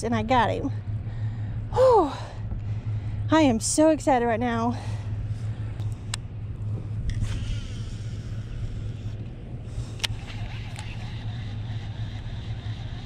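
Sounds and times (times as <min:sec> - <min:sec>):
steady low rumble: 0:00.0 - 0:13.0
fishing reel clicks: 0:09.8 - 0:13.0.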